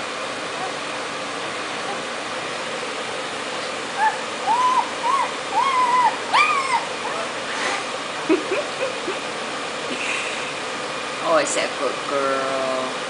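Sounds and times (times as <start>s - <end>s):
puppies squealing: 4.0s - 7.4s.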